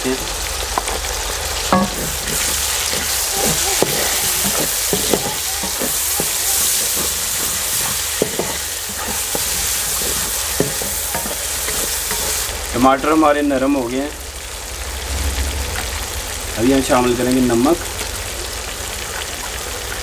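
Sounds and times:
vegetables sizzling in oil: 0:00.0 - 0:20.0
wooden spoon scraping a pan: 0:00.8 - 0:12.5.

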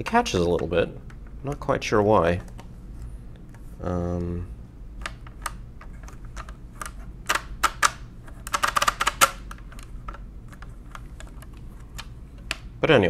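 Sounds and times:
mechanical calculator clicking: 0:06.8 - 0:09.8.

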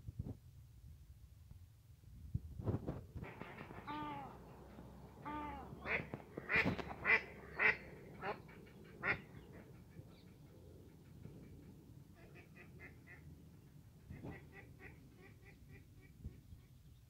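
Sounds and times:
ducks quacking: 0:05.2 - 0:16.5.

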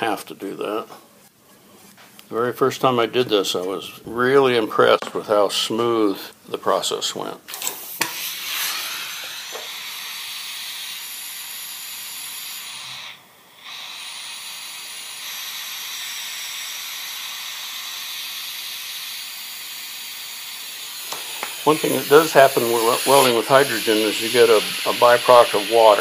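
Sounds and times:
welding torch flame hissing: 0:07.5 - 0:26.0.

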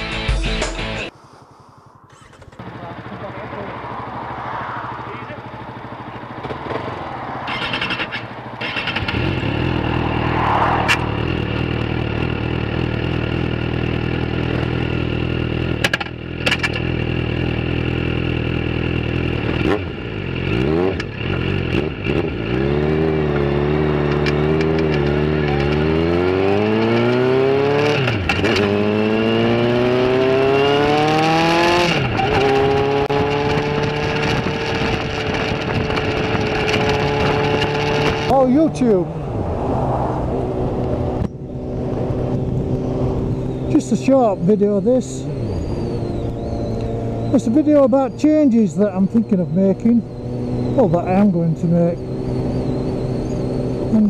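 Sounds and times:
motorcycle engine revving: 0:01.8 - 0:54.0.

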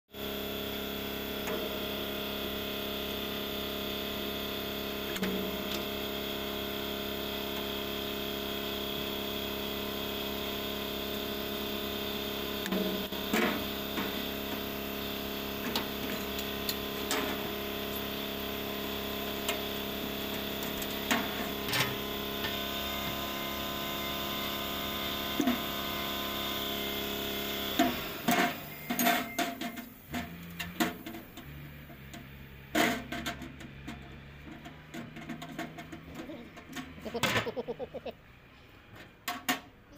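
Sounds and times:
steady machine hum: 0:00.2 - 0:31.4.

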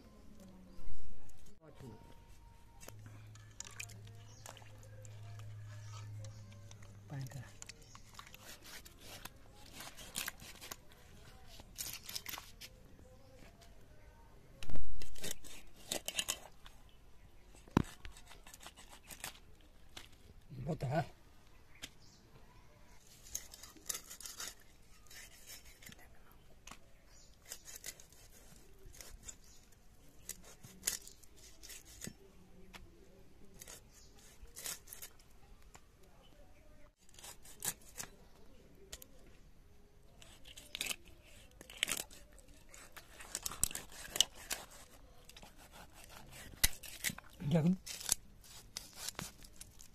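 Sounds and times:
fish scales being scraped: 0:04.4 - 0:10.9, 0:11.5 - 0:12.7, 0:15.0 - 0:16.6, 0:17.8 - 0:19.4, 0:23.0 - 0:26.0, 0:27.2 - 0:32.2, 0:33.5 - 0:35.3, 0:37.0 - 0:38.2, 0:40.2 - 0:49.9.

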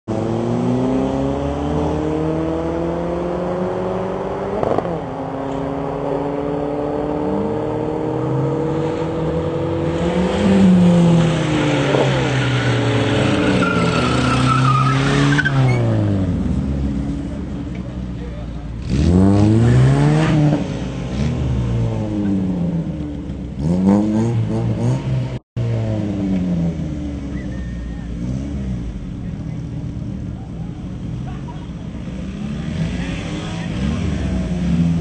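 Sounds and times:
cars accelerating hard: 0:00.1 - 0:35.0
drag racing engines revving: 0:00.1 - 0:35.0.

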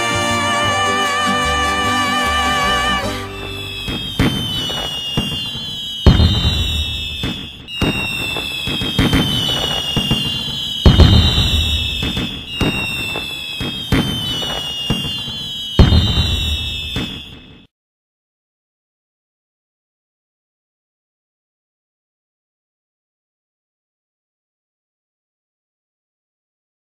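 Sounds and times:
fireworks crackling: 0:00.0 - 0:17.7
rocket whistles: 0:00.0 - 0:17.7
fireworks bangs and booms: 0:03.2 - 0:17.7.

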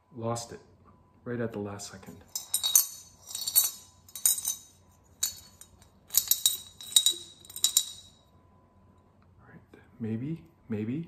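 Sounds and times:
coins rattling in ceramic bank: 0:02.3 - 0:08.2.

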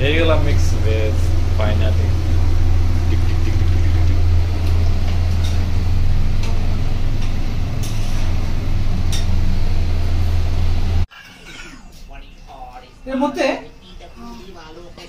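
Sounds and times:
low rumbling hum: 0:00.0 - 0:11.1.

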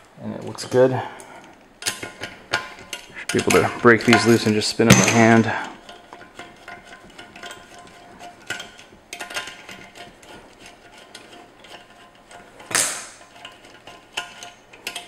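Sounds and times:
metal nuts clicking and scraping: 0:00.3 - 0:15.0
metal clack: 0:01.8 - 0:15.0.

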